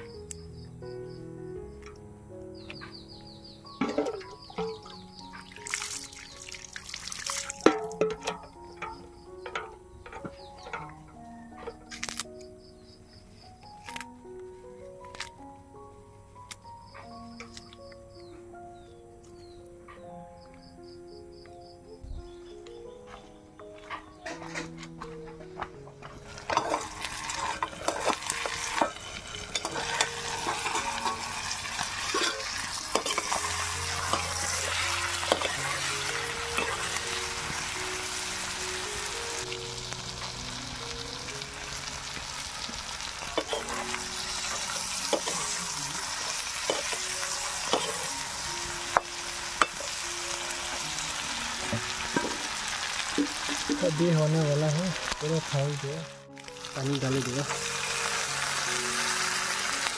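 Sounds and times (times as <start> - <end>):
soft background music: 0.0 - 59.9
food sizzling in a wok: 3.8 - 9.0, 26.2 - 59.9
utensil scraping a pan: 26.1 - 37.0.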